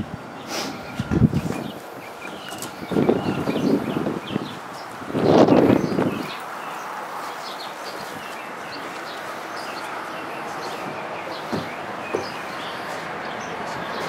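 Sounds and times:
small birds chirping: 0.3 - 14.0
light knocks: 11.5 - 12.4.

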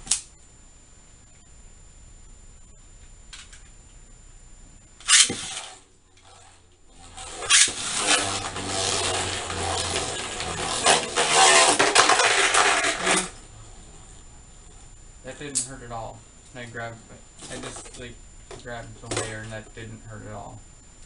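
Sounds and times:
spinning tops whirring and scraping: 5.0 - 13.4
top launcher ripping: 7.2 - 13.3.

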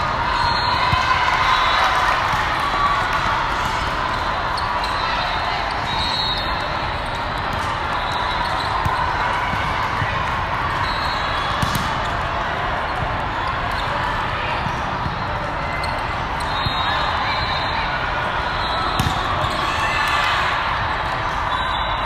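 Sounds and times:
hubbub of voices: 0.0 - 22.0
volleyballs hit and bouncing: 0.7 - 5.0, 6.7 - 16.8, 18.8 - 21.4.

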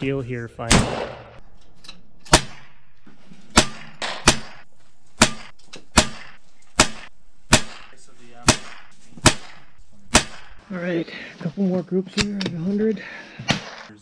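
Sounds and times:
gunshots: 0.6 - 1.4, 2.2 - 2.9, 3.5 - 10.6, 13.5 - 14.0.

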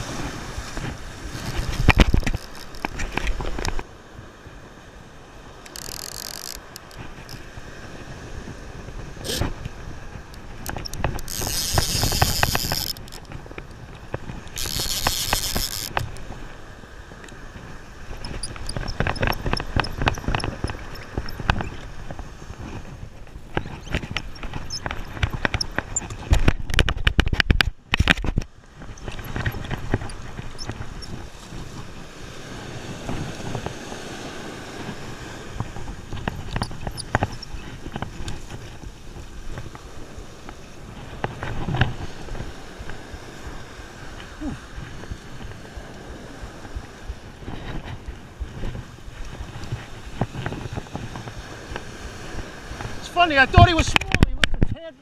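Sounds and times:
surf: 0.0 - 55.0
wind on microphone: 0.0 - 55.0
fishing reel clicking and knocking: 1.4 - 3.7, 5.6 - 7.4, 10.6 - 13.4, 14.4 - 16.2, 18.2 - 21.8.

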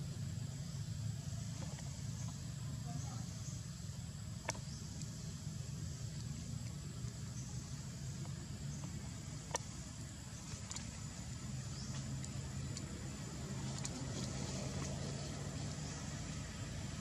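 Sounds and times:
low engine rumble: 0.0 - 17.0
faint clicks: 4.3 - 5.3, 6.0 - 16.5.

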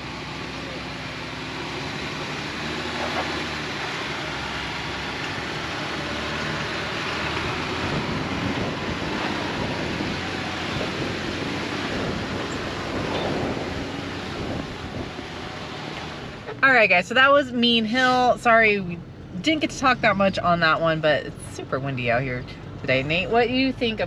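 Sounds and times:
off-road vehicle engine: 0.0 - 24.0
wind buffeting microphone: 6.5 - 16.6.

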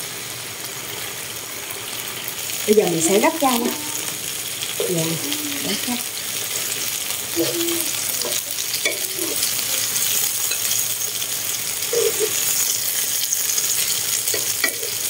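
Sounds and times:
rolls sizzling in a pan: 0.0 - 15.0.

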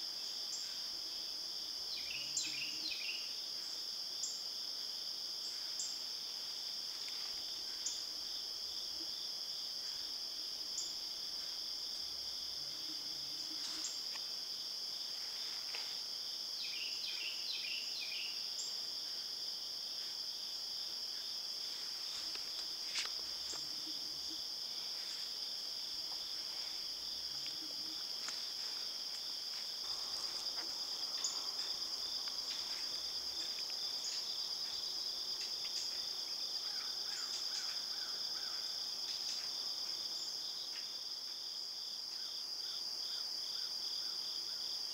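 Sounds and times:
insects shrilling: 21.7 - 36.0.

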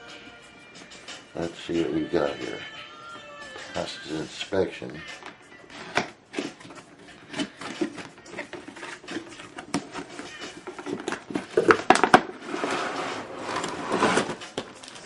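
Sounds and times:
packaging rustling and crinkling: 5.8 - 15.0
box sliding out rasp: 12.3 - 14.6.

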